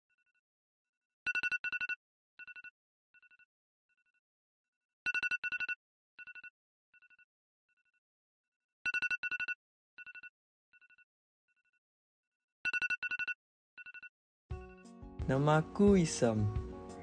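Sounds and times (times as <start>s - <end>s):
phone ringing with high beeps: 5.1s - 7.3s, 8.9s - 11.0s, 12.7s - 14.8s.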